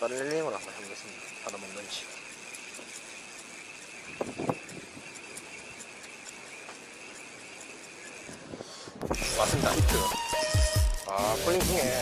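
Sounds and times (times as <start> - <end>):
fishing reel ticking: 0.0 - 12.0
high hum: 0.0 - 12.0.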